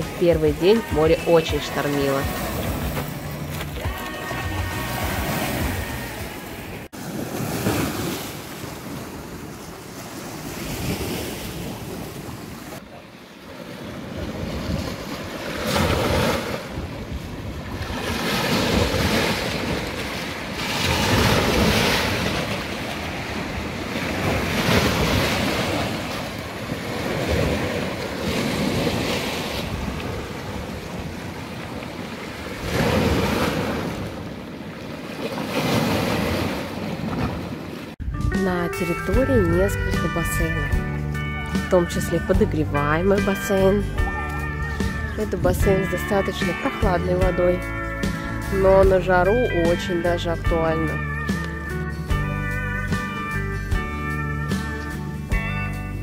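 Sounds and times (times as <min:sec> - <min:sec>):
waves breaking on rocky shore: 0:00.0 - 0:38.0.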